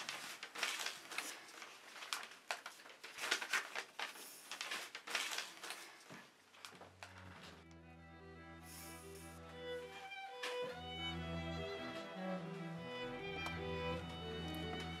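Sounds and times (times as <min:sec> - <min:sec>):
paper envelope rustling: 0:00.0 - 0:07.6
bowed string music: 0:07.1 - 0:15.0
person sniffing: 0:08.6 - 0:09.4.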